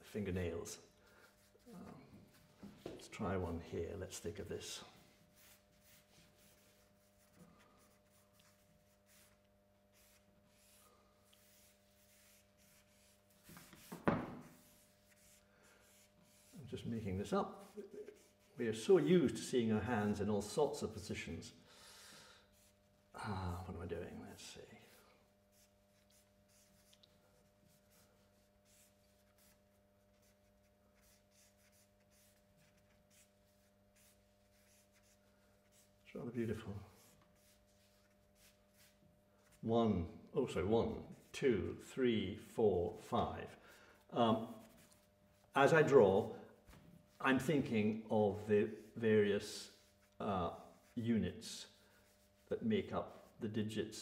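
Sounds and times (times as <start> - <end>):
drawing stick scratching paper: 5.2 - 18.9, 22.5 - 22.8, 25.5 - 39.6, 44.4 - 45.8, 48.8 - 53.4.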